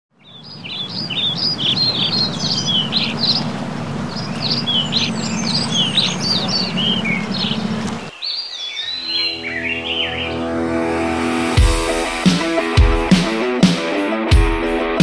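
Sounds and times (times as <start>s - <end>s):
small birds chirping: 0.1s - 10.6s
steady low hum: 0.9s - 8.1s.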